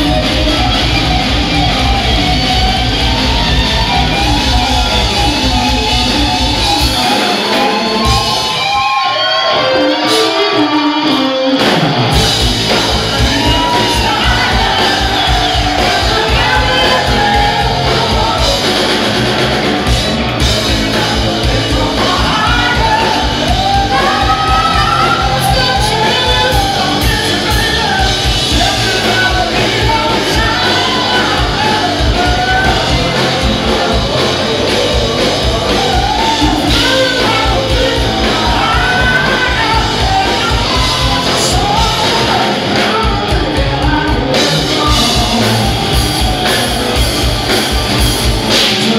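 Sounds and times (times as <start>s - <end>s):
live rock band playing: 0.0s - 48.9s
man singing lead vocal: 12.1s - 47.5s, 48.4s - 48.9s.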